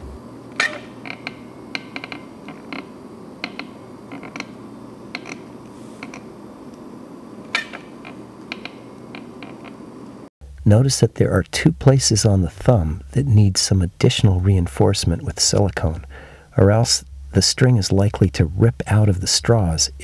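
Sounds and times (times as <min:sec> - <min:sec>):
low background hum: 0:00.0 - 0:20.0.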